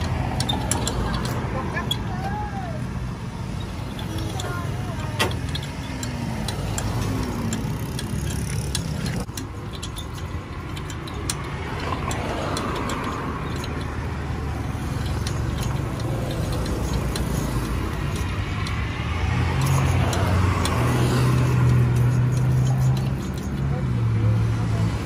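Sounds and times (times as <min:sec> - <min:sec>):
roller press clicking and rattling: 0:00.0 - 0:02.3, 0:03.4 - 0:23.8
road traffic rumble: 0:00.0 - 0:25.0.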